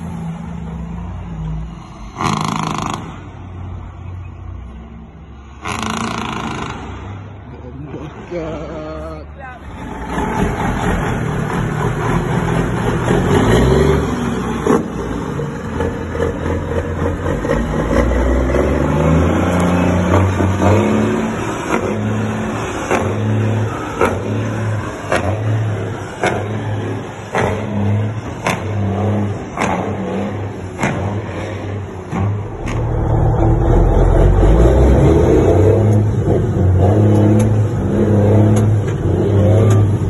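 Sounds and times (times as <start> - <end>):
diesel truck revving: 0.0 - 40.0
pulsing low drone: 32.3 - 36.3.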